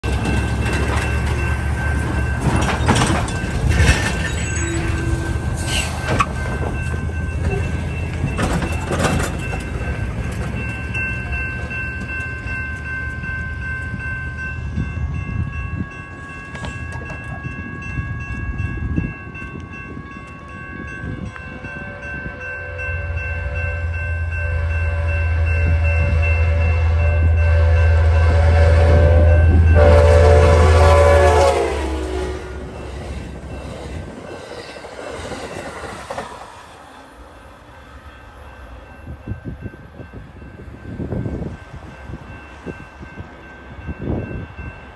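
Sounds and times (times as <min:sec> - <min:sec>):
railroad crossing bell ringing: 0:00.0 - 0:36.1, 0:37.3 - 0:44.9
train rumble: 0:00.0 - 0:44.9
distant train horn: 0:04.6 - 0:05.9, 0:21.3 - 0:33.0.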